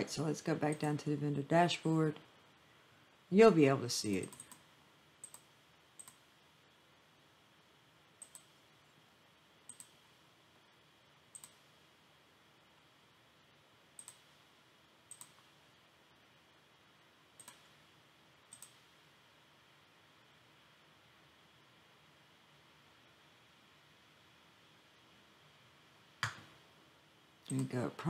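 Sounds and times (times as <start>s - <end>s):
faint room hiss: 0.0s - 28.0s
computer mouse clicks: 0.7s - 0.9s, 4.2s - 4.6s, 5.2s - 6.2s, 8.2s - 8.6s, 9.7s - 10.0s, 11.3s - 11.7s, 14.0s - 14.4s, 15.1s - 15.6s, 17.4s - 17.8s, 18.5s - 18.9s.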